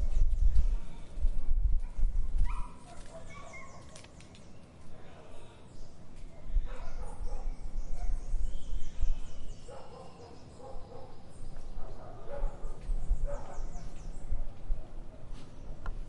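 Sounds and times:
distant dog barking: 0:01.8 - 0:04.1, 0:06.4 - 0:08.3, 0:08.9 - 0:15.4
small birds chirping: 0:02.0 - 0:16.0.

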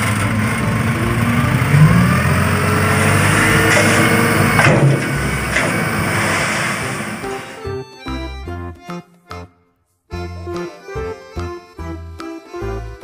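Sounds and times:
diesel engine running under load: 0:00.0 - 0:07.8.

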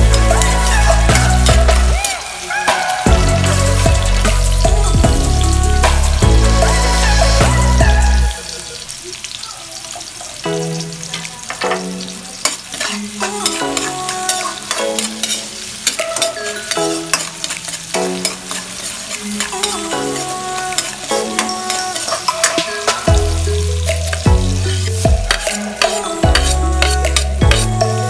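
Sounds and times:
background music: 0:00.0 - 0:08.9, 0:10.4 - 0:28.0
food sizzling in a pan: 0:00.0 - 0:28.0
utensil clicking while stirring: 0:25.0 - 0:27.7.

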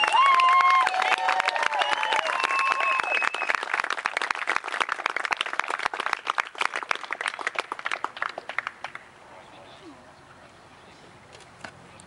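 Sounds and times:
crowd clapping: 0:00.0 - 0:09.1.

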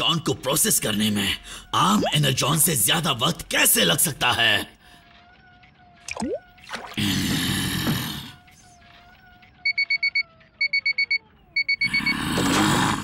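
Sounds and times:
electronic beeps: 0:09.6 - 0:12.3.

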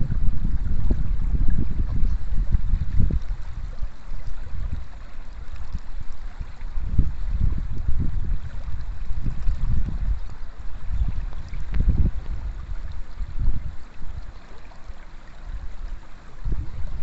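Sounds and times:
river water running over stones: 0:00.0 - 0:17.0
wind rumble on microphone: 0:00.0 - 0:17.0.

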